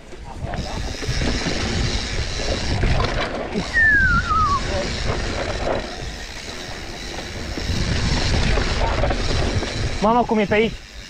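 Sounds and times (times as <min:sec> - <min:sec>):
bike rattling and rumbling: 0:00.0 - 0:11.0
thin squeal falling in pitch: 0:03.7 - 0:04.7.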